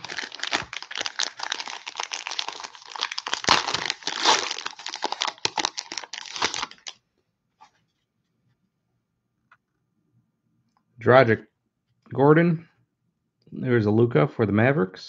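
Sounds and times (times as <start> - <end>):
plastic wrapper crinkling and tearing: 0.0 - 7.0.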